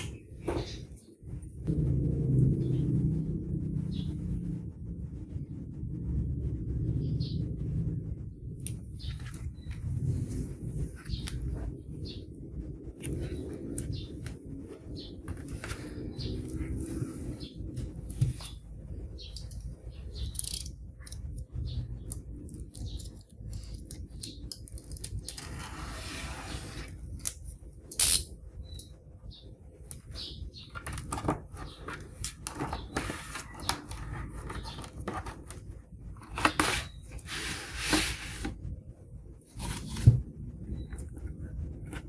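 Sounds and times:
plastic wrap and cardboard rustling: 39.4s - 40.3s.

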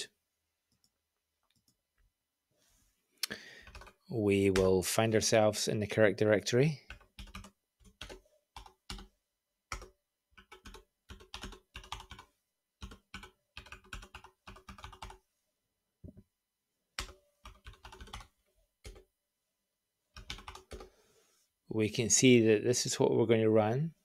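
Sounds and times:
typing on computer keyboard: 3.6s - 4.7s, 6.9s - 9.1s, 9.7s - 15.2s, 17.0s - 19.1s, 20.2s - 20.9s.

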